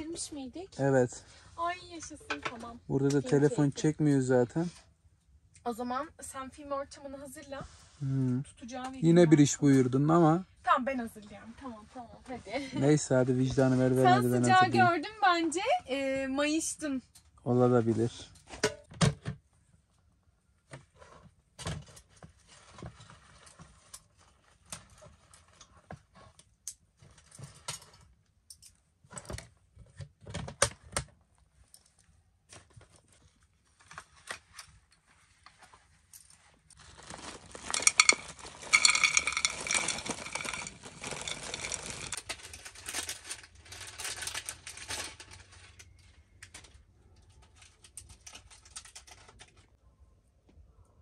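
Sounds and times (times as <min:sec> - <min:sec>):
small objects clinking: 0:02.3 - 0:03.8, 0:12.8 - 0:15.0, 0:36.1 - 0:46.8
rustling clatter: 0:31.7 - 0:49.7.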